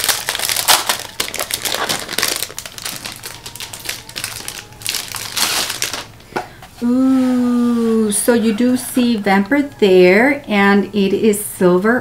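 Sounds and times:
packaging crinkling and rustling: 0.0s - 6.2s.

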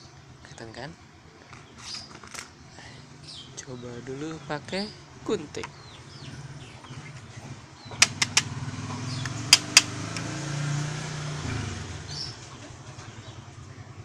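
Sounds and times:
passing vehicle engine hum: 5.9s - 14.0s
scissors clicking on glass: 8.0s - 8.5s, 9.2s - 10.3s.

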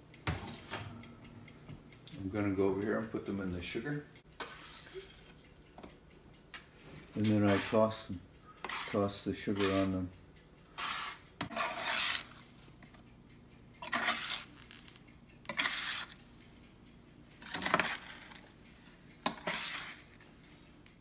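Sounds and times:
spatula scraping baking pan: 4.4s - 5.4s, 7.2s - 10.0s, 10.8s - 12.5s, 13.8s - 14.9s, 15.5s - 16.2s, 17.4s - 18.4s, 19.2s - 20.2s.

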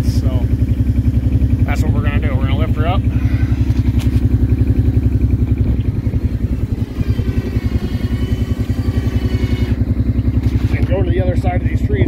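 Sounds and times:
atv engine chugging: 0.0s - 12.0s
faint high whine: 5.8s - 9.8s.

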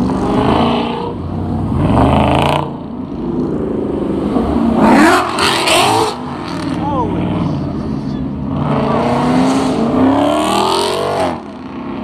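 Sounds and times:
cars accelerating past: 0.0s - 12.0s.

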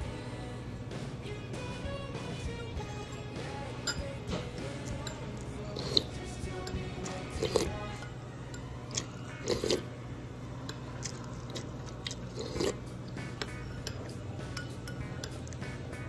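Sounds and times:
faint background music: 0.0s - 16.0s
wet eating sounds: 4.3s - 16.0s.

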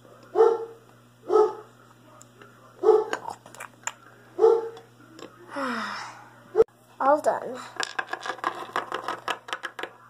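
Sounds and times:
dog barking: 0.3s - 1.7s, 2.8s - 3.2s, 4.4s - 4.8s.

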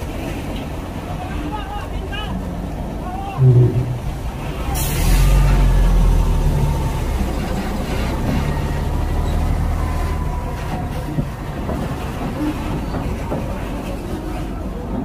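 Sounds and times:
diesel truck engine driving past: 3.4s - 12.2s.

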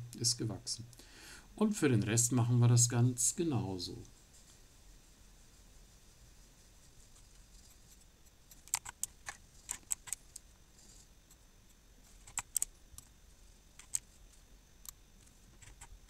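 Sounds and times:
keyboard and mouse clicking: 8.5s - 10.2s, 12.2s - 13.1s, 13.8s - 14.0s, 15.6s - 15.9s.

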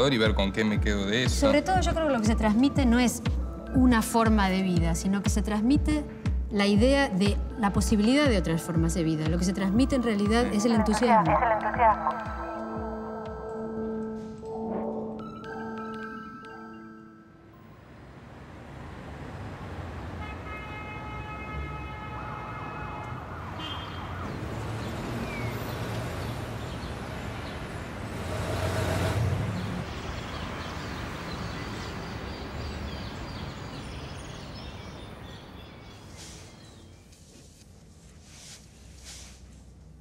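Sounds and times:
traffic rumble: 17.5s - 40.0s
vehicle passing loudly: 17.6s - 20.4s, 24.0s - 32.9s
siren: 21.5s - 24.3s.

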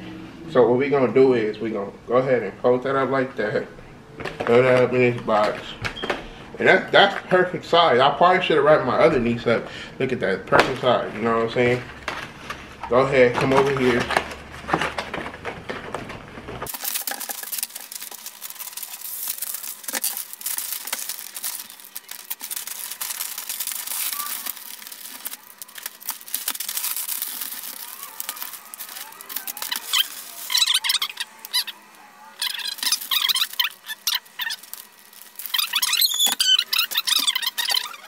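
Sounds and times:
wrapping paper crinkling: 12.2s - 38.0s
tape squeaking off roll: 16.4s - 38.0s
paper clicks and rips: 16.6s - 38.0s.

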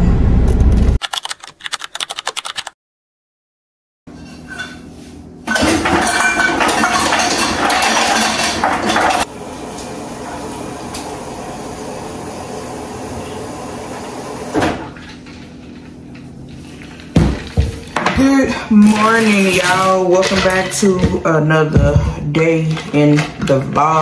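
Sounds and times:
ice cubes clattering into tumbler: 5.6s - 9.3s.

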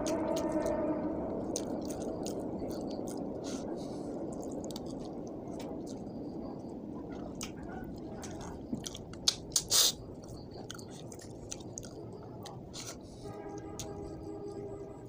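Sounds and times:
person chewing with mouth open: 0.0s - 0.7s, 1.5s - 6.1s, 7.2s - 13.1s
wet mouth smacking: 8.9s - 9.9s.

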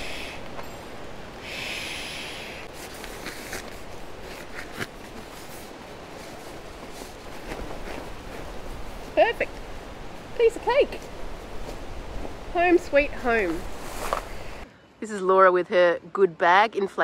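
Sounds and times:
sleeping pad rustling and clicks: 2.7s - 8.8s, 13.4s - 14.3s.

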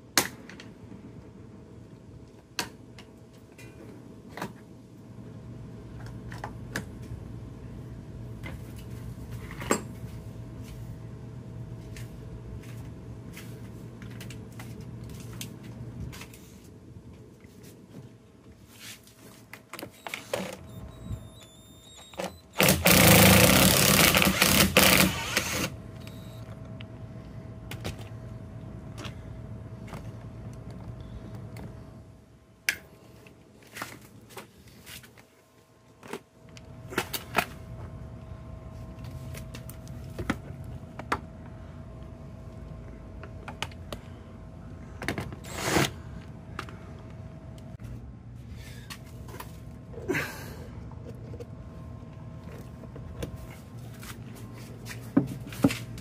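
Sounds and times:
loud rough noise: 22.5s - 26.4s.

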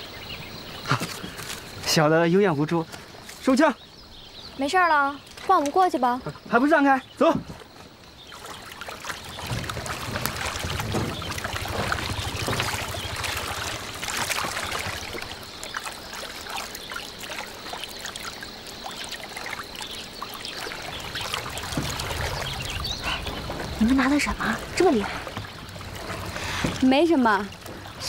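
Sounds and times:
water trickling and splashing: 0.0s - 28.0s.

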